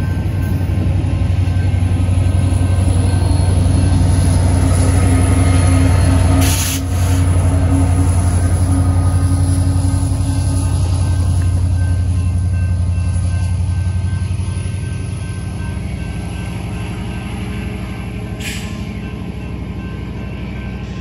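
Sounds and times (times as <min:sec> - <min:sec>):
diesel locomotive engines droning: 0:00.0 - 0:21.0
brief hiss: 0:06.4 - 0:07.2, 0:18.4 - 0:18.8.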